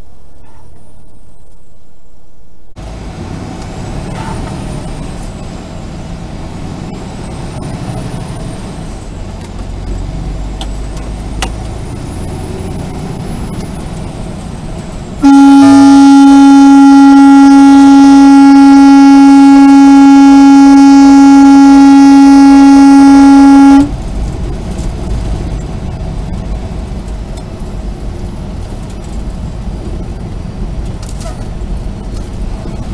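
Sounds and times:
truck engine and road rumble: 0.0s - 32.9s
truck horn blast: 15.2s - 24.0s.

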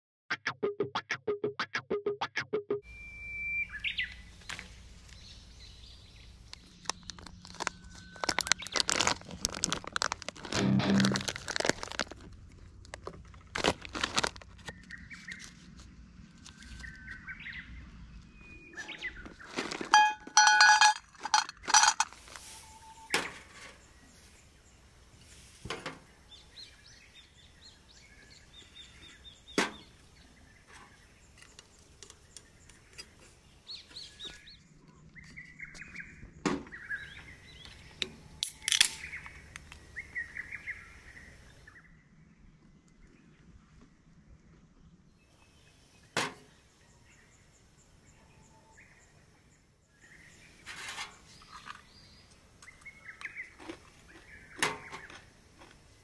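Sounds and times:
small birds chirping: 2.9s - 9.4s, 14.6s - 21.0s, 22.7s - 56.0s
metal clinking on metal table: 20.0s - 22.1s
ringing metallic tones: 20.0s - 23.1s.

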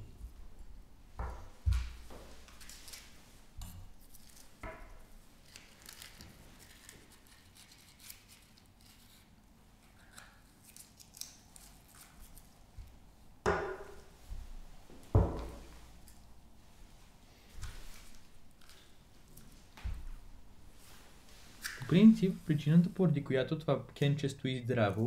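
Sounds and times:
lab items knocking and scraping: 15.0s - 15.9s.

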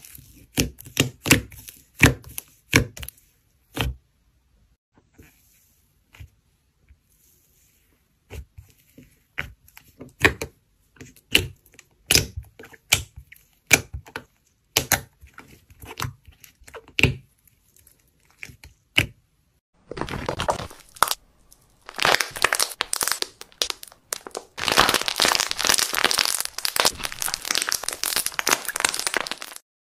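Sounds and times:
slime crackling crunches: 19.9s - 29.6s
slime popping and clicking: 21.8s - 29.6s.

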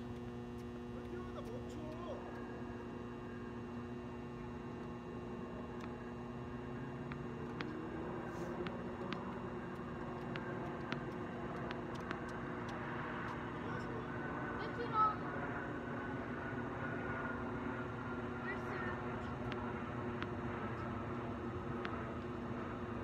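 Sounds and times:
steady background hum: 0.0s - 23.0s
faint distant taps: 8.5s - 13.4s.

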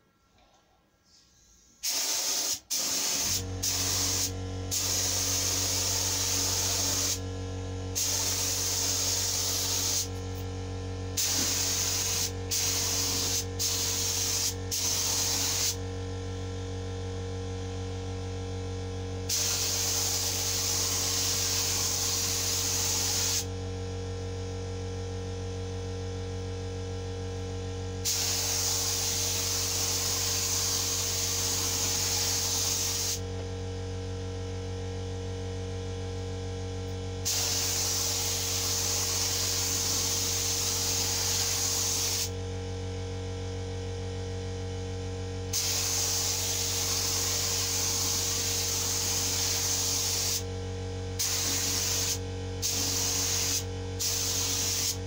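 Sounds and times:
steady low hum: 0.0s - 55.0s
spray gun hissing: 1.8s - 7.2s, 8.0s - 10.2s, 11.2s - 15.8s, 19.3s - 23.5s, 28.1s - 33.2s, 37.3s - 42.3s, 45.6s - 50.4s, 51.2s - 55.0s.

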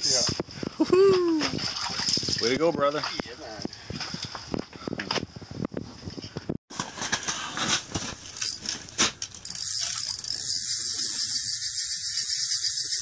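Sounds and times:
fishing reel clicking: 9.4s - 13.0s
reel drag buzzing: 9.4s - 13.0s.

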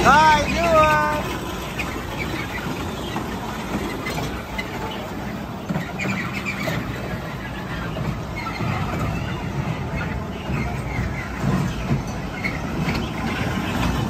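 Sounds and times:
kiddie train rumbling on track: 0.0s - 14.0s.

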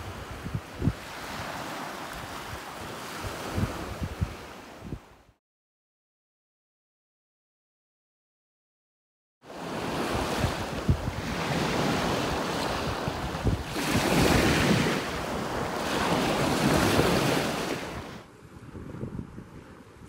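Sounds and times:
waves washing on beach: 0.0s - 5.2s, 9.5s - 20.0s
wind buffeting microphone: 0.0s - 5.3s, 9.6s - 20.0s.

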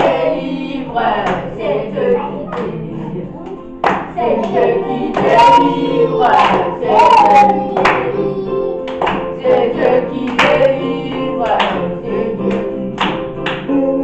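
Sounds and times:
children singing: 0.0s - 14.0s
hand claps: 1.2s - 1.5s, 3.4s - 5.5s, 6.3s - 6.7s, 7.7s - 8.2s, 8.8s - 9.4s, 10.3s - 13.7s.

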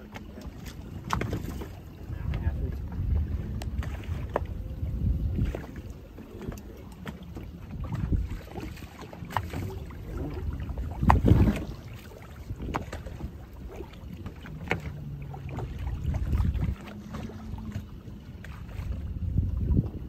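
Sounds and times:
gear knocking against boat: 0.0s - 4.6s
low steady hum: 0.0s - 20.0s
rumbling water wash: 0.0s - 20.0s
wind buffeting microphone: 0.0s - 20.0s.

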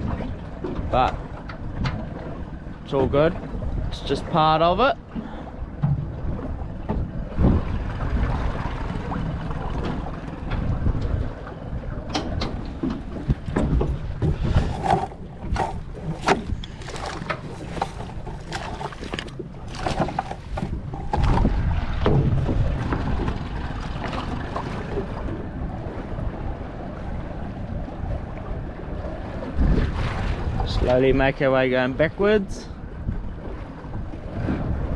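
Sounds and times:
wind buffeting microphone: 0.0s - 31.4s, 32.7s - 34.9s
outboard motor running slowly: 0.0s - 34.9s
net knocking and rattling: 13.2s - 21.5s.

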